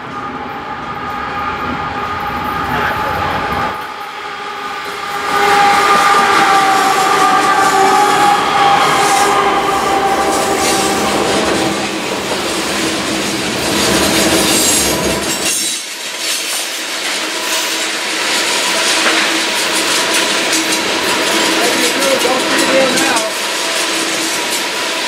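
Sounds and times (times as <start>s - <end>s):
train horn: 0.0s - 12.3s, 18.8s - 23.4s
train cars rolling past: 0.0s - 25.0s
wheels clicking over rail joints: 10.4s - 25.0s.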